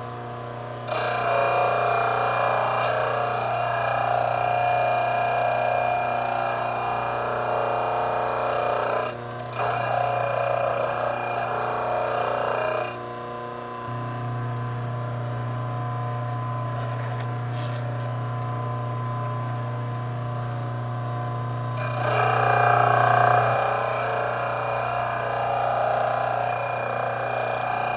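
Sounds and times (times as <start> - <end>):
high ringing grinding: 0.9 - 13.0, 21.8 - 27.9.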